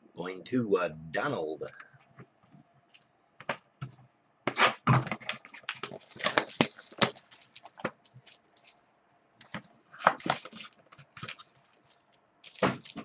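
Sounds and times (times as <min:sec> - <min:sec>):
trading cards clicking and rustling: 0:04.9 - 0:08.8.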